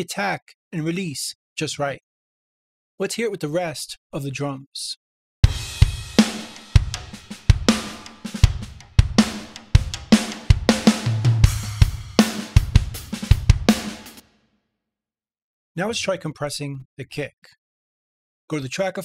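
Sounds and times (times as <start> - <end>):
kick drum: 5.4 - 13.8
snare drum: 5.4 - 14.2
cymbals: 5.5 - 14.2.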